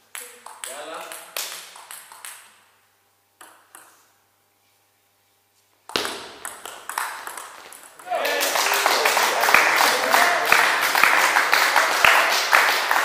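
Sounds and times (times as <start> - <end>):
table tennis ball hits: 0.1 - 2.7, 3.4 - 4.0, 5.9 - 8.4.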